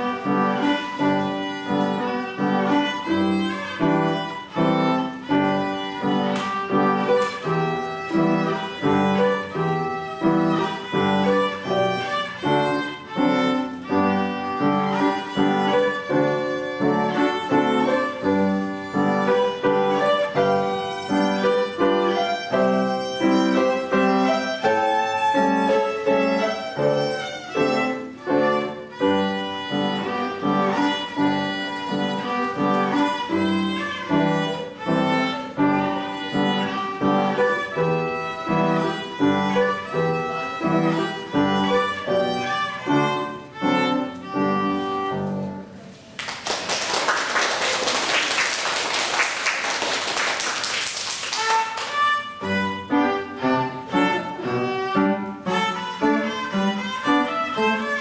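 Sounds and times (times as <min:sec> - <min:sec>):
violin playing: 0:00.0 - 0:45.9, 0:51.2 - 0:58.0
loud hiss-like noise: 0:00.0 - 0:58.0
piano accompaniment: 0:00.0 - 0:58.0.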